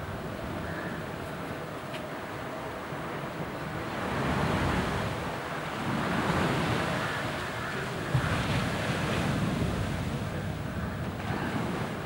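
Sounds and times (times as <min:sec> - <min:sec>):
sea surf: 0:00.0 - 0:12.0.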